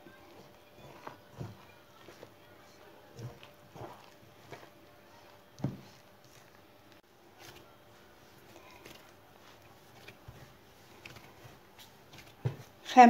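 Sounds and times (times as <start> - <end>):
hand kneading dough: 0.0 - 13.0.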